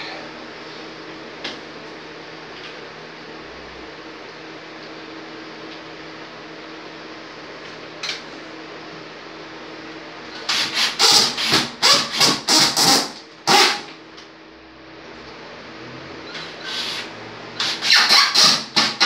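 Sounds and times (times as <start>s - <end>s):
cordless drill driving a screw: 10.5s - 13.8s, 16.4s - 19.0s.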